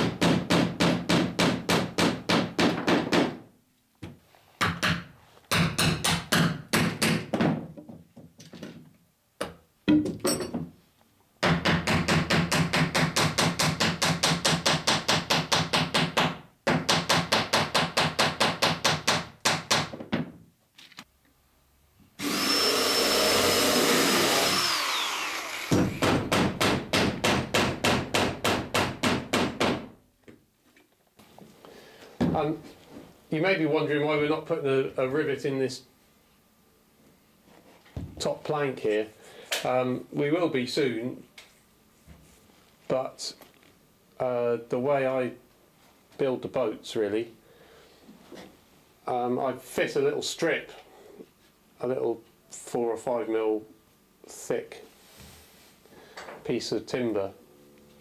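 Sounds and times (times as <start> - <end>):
cordless drill whining: 22.2 - 26.0.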